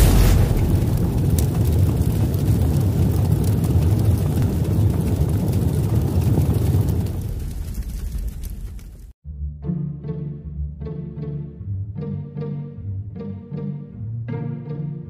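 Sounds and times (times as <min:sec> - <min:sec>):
deep rushing rumble: 0:00.0 - 0:08.8.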